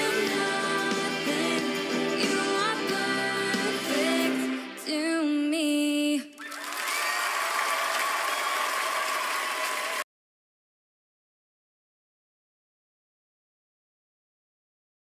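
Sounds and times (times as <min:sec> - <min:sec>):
person singing over band: 0:00.0 - 0:05.0
audience applause: 0:06.4 - 0:10.0.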